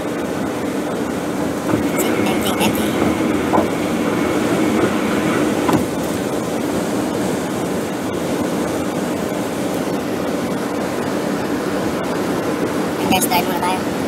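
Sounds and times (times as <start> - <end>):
car road and tyre noise: 0.0 - 14.0
low hum: 1.0 - 10.2.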